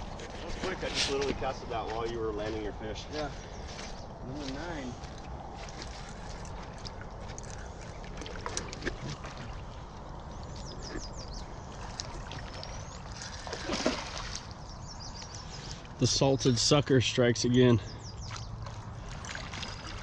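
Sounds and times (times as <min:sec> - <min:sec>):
outdoor background noise: 0:00.0 - 0:20.0
high bird chirps: 0:14.6 - 0:15.8.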